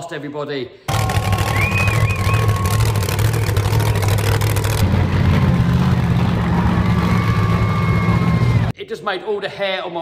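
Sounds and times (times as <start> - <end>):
monster truck engines rumbling: 0.9 - 8.8.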